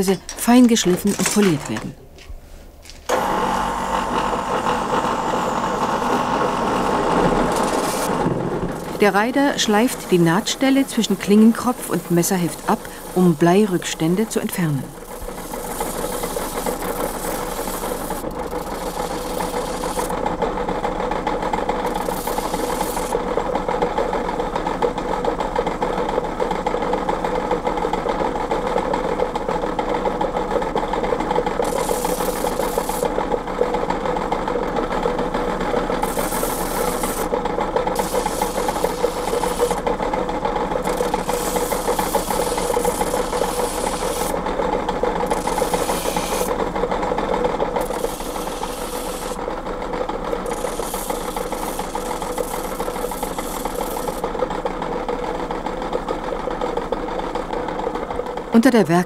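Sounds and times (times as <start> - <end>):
grinding wheel motor hum: 2.9 - 58.6
knife grinding hiss: 31.6 - 33.0, 38.0 - 39.8, 40.9 - 44.3, 45.3 - 46.5, 47.8 - 49.4, 50.5 - 54.2.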